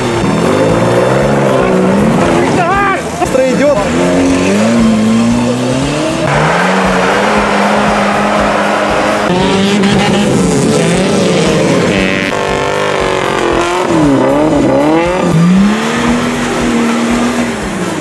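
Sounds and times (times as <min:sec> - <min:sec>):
off-road vehicle engine revving: 0:00.0 - 0:18.0.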